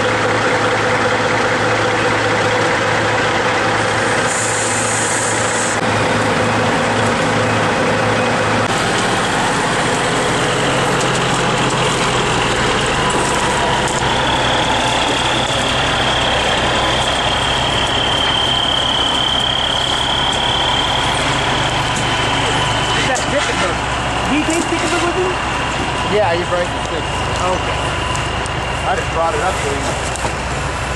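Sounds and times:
diesel truck engine running: 0.0 - 30.9.

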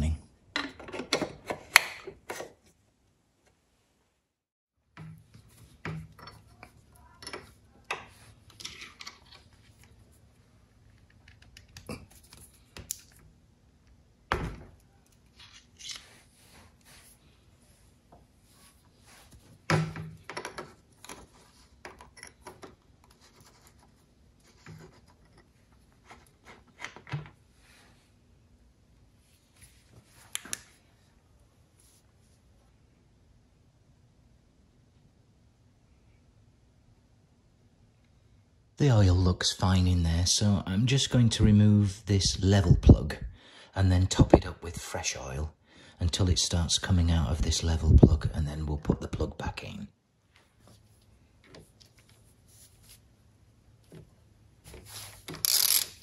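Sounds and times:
metal clicks and scrapes of tools: 55.3 - 56.0.

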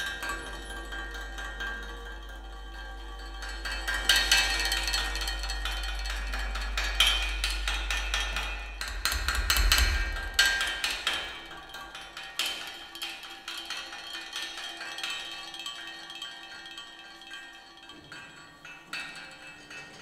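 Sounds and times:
steady low drone: 0.0 - 12.2.

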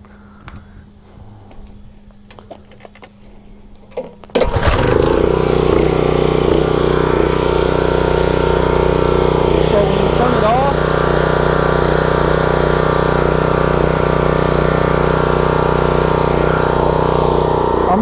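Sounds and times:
engine pull-start: 3.9 - 18.0
pressure washer engine running: 4.4 - 18.0.

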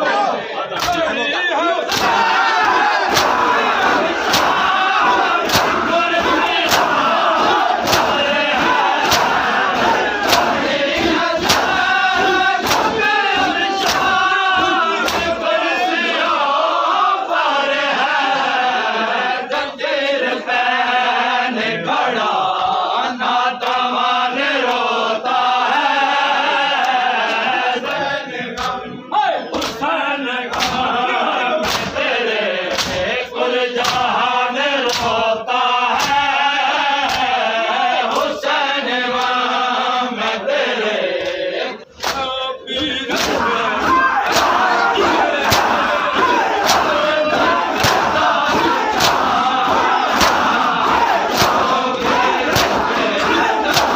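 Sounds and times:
men chanting in unison: 0.0 - 53.9
hands slapping chests: 0.8 - 1.1, 1.9 - 15.4, 28.6 - 28.9, 29.5 - 29.8, 30.5 - 30.9, 31.6 - 32.0, 32.7 - 33.1, 33.8 - 34.2, 34.8 - 35.2, 35.9 - 36.3, 37.0 - 37.4, 42.0 - 42.4, 43.1 - 53.9.

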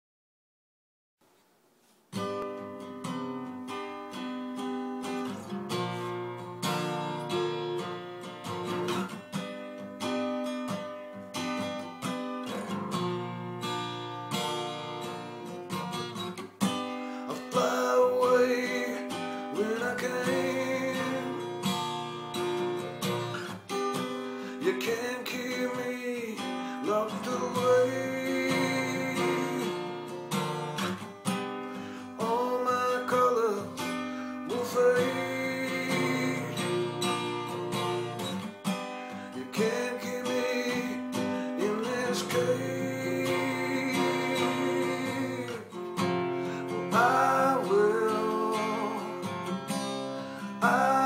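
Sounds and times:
acoustic guitar strumming: 2.1 - 51.0
man singing: 17.3 - 21.7, 24.4 - 30.1, 32.2 - 37.0, 39.1 - 45.8, 46.4 - 49.6, 50.4 - 51.0.

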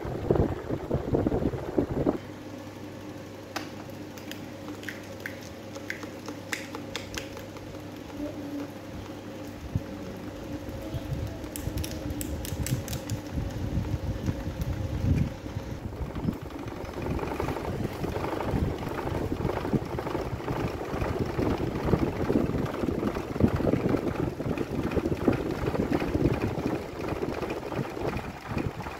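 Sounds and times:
airflow buffeting microphone: 0.0 - 2.4, 9.6 - 28.9
electric fan motor hum: 0.0 - 28.9.

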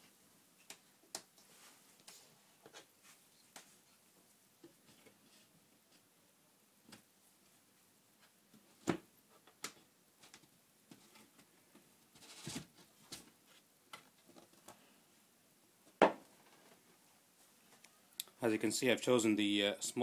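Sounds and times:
scraping rustle: 12.1 - 13.7.

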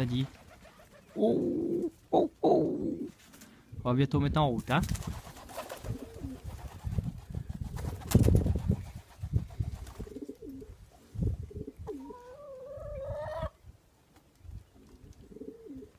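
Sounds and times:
wood pigeons cooing: 0.0 - 3.6, 5.5 - 6.5, 9.9 - 13.6, 14.6 - 15.9.

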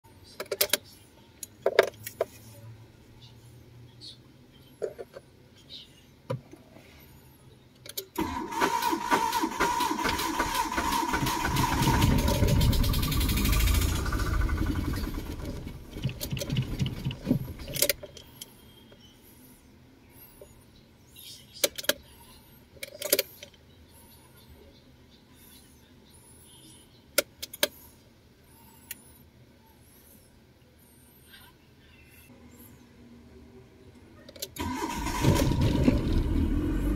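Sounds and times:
car starter cranking: 8.2 - 18.0, 34.5 - 36.9
car engine running and stalling: 8.2 - 18.1, 34.6 - 36.9.

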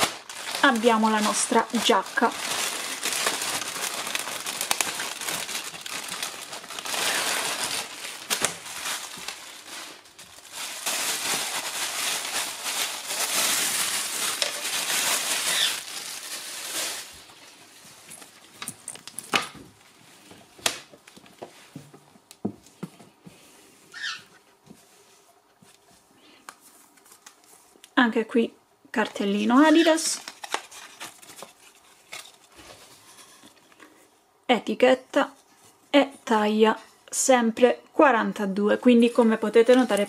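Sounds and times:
plastic bag crinkling: 0.0 - 19.9, 29.3 - 33.6.

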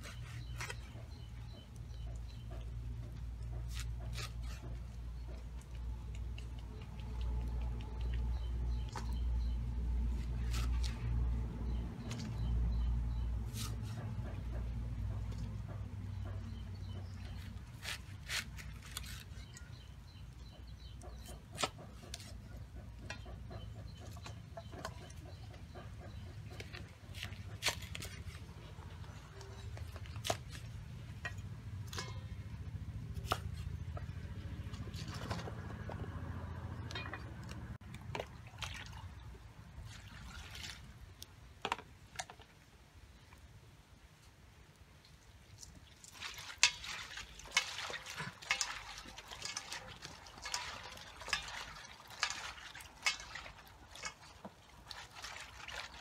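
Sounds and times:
low steady hum: 0.0 - 41.6
water dripping and splashing: 4.8 - 32.5, 33.2 - 41.6, 44.6 - 56.0.

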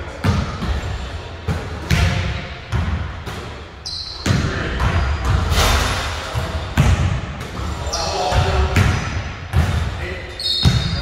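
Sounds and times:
basketballs bouncing on wooden floor: 0.2 - 3.5, 6.4 - 9.9, 10.6 - 11.0.

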